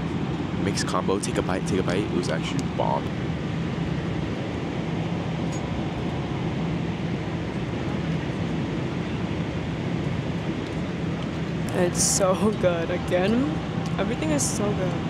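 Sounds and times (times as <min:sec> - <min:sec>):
low cabin hum: 0:00.0 - 0:15.0
rush of air and jet engines: 0:00.0 - 0:15.0.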